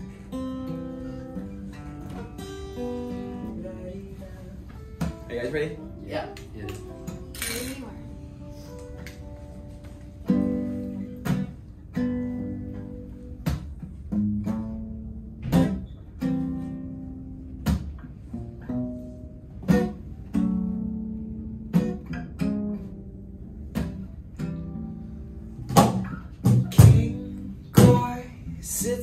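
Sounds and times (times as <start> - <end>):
acoustic guitars strumming: 0.0 - 29.0
bass guitar: 0.0 - 29.0
cajon hits: 4.7 - 5.3, 11.1 - 11.7, 12.6 - 15.9, 17.4 - 18.2, 25.6 - 28.3.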